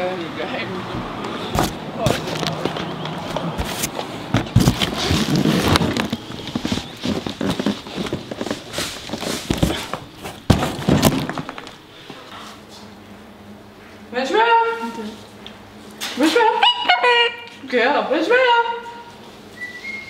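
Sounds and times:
handling knocks and scuffs: 1.5 - 11.8
footsteps: 1.6 - 12.9.

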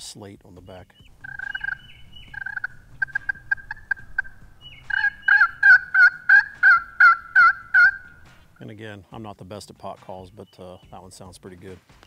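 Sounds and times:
turkey pot call yelps: 1.1 - 8.6.

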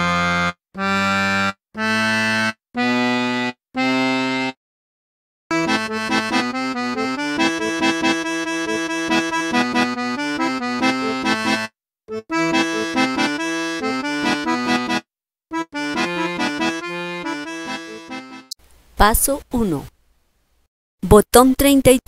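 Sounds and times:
button accordion playing: 0.0 - 4.6, 5.5 - 18.6.

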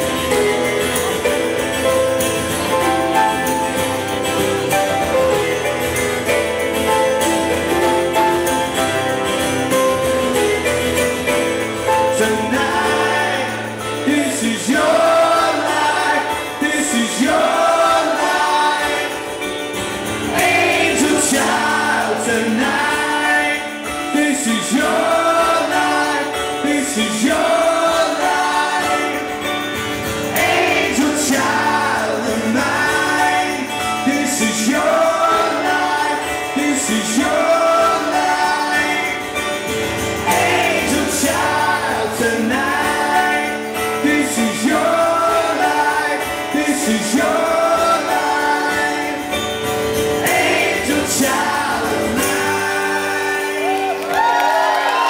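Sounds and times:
strummed acoustic guitar: 0.0 - 54.1
man singing into microphone: 11.8 - 19.5, 20.3 - 29.6, 30.3 - 49.5, 50.2 - 54.1.

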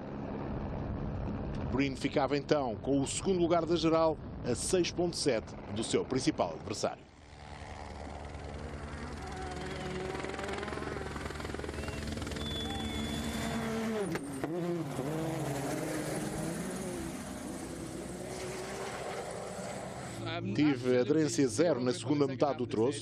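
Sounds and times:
helicopter rotor chopping: 0.0 - 20.8
rally car engine passing: 9.2 - 20.3.

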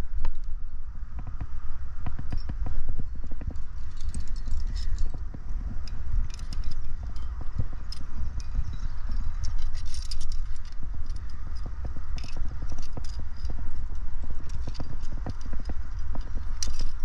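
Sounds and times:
low microphone rumble: 0.0 - 17.0
climbing gear rattling: 3.3 - 17.0
carabiners snapping: 5.8 - 17.0.

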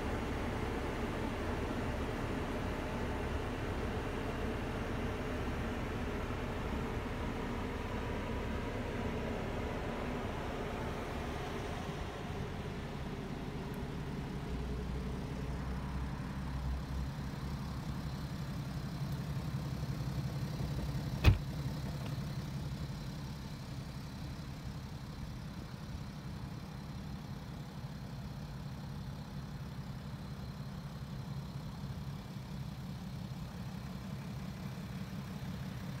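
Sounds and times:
car door shutting: 20.8 - 22.2.

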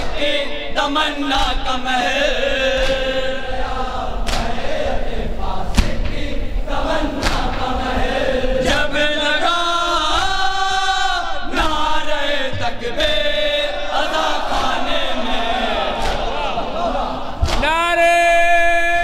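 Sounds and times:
men chanting in unison: 0.0 - 19.0
chest-beating slaps: 2.7 - 3.2, 4.2 - 4.9, 5.7 - 6.3, 6.9 - 8.8, 15.4 - 16.7, 17.3 - 17.8.

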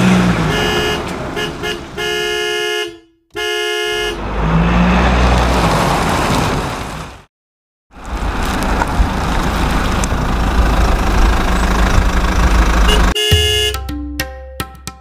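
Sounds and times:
rough engine rumble: 8.0 - 13.7
short electronic horn tones: 12.9 - 13.8.

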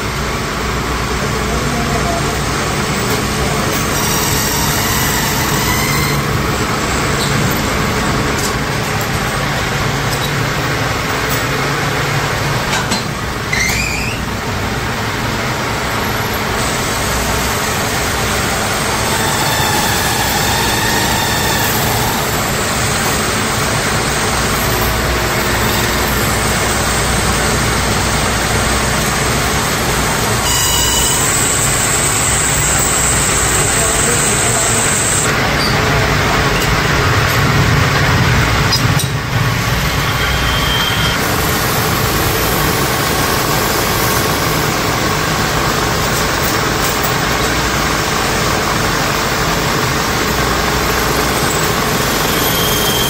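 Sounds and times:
metal lathe running: 0.0 - 53.0
rising squeal: 3.8 - 8.0, 13.5 - 14.5, 16.0 - 23.3, 29.0 - 35.8, 39.6 - 42.3, 50.9 - 53.0.

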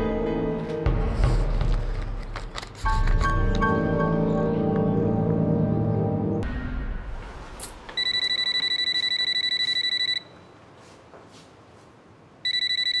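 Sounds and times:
phone ringing: 8.0 - 10.5, 12.4 - 13.0.

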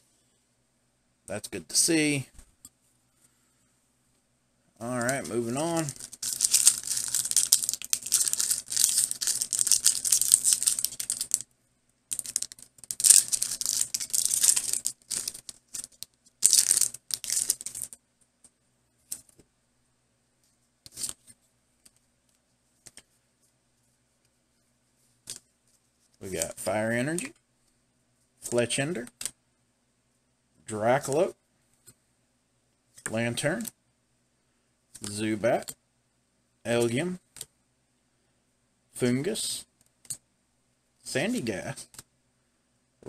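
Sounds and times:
foil wrapper crinkling and tearing: 5.8 - 11.4, 12.1 - 18.0.

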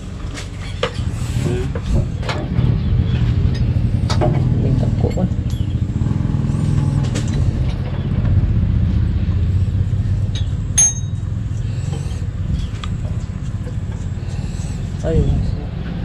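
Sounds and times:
steady low rumble: 0.0 - 16.0
metallic clink: 10.3 - 11.3.

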